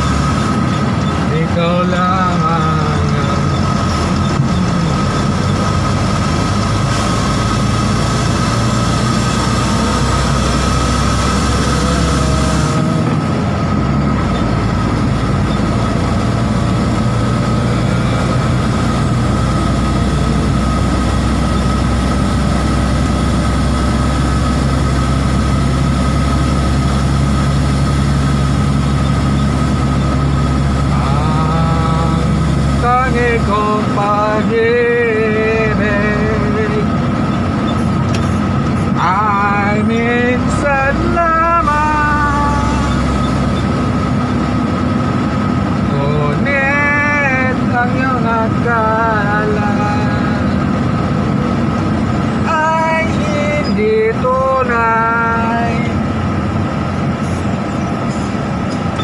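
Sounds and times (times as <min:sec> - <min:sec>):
diesel truck engine droning: 0:00.0 - 0:59.0
high whine: 0:00.0 - 0:59.0.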